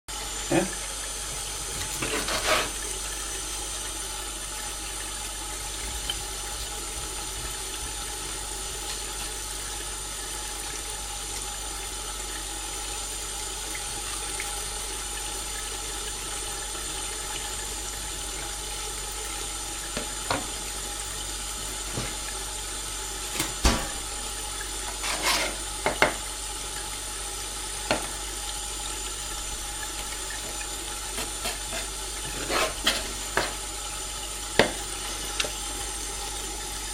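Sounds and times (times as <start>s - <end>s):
knife knocking on chopping board: 34.6s - 34.8s.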